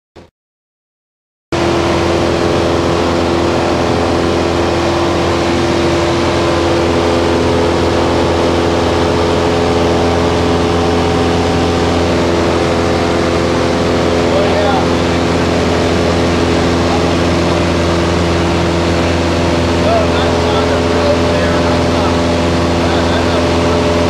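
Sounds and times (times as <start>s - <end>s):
light aircraft engine drone: 1.6s - 24.0s.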